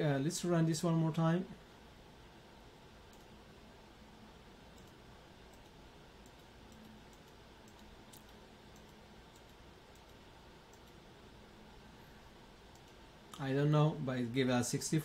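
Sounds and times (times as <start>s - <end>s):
computer mouse clicks: 3.1s - 3.4s, 4.7s - 11.0s, 12.7s - 13.4s.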